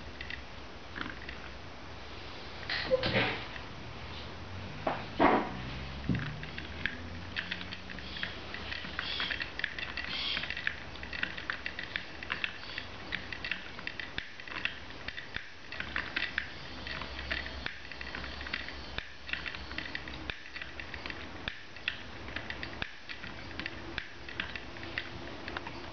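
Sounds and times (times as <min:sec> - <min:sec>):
wooden mechanism clicking and clattering: 0:05.2 - 0:25.9.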